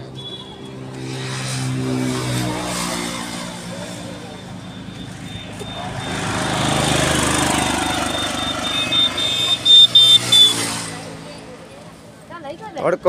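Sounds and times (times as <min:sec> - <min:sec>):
vehicle passing by: 0:00.4 - 0:12.3
short high-pitched beeps: 0:04.0 - 0:10.7.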